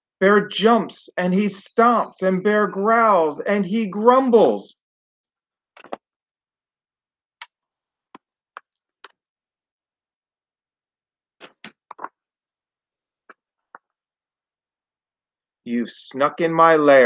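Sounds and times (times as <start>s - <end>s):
book pages clicks and taps: 5.8s - 6.0s.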